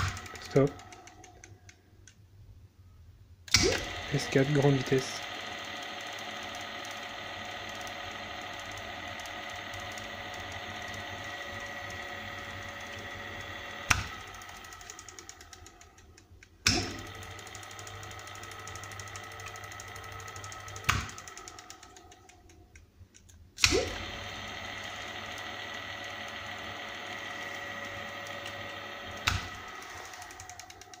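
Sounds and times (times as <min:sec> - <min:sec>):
electric motor whining: 0:00.0 - 0:01.4, 0:03.6 - 0:16.0, 0:23.6 - 0:31.0
contactor clacking: 0:00.0 - 0:01.5, 0:03.5 - 0:22.6, 0:23.6 - 0:31.0.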